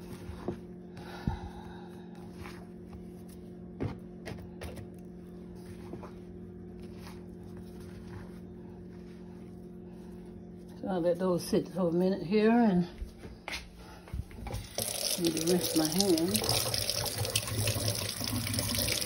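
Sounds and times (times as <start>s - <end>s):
steady low hum: 0.0s - 14.8s.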